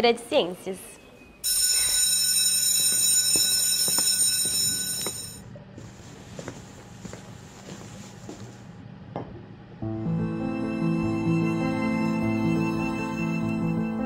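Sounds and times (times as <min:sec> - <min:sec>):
alarm bell ringing: 0:01.4 - 0:05.4.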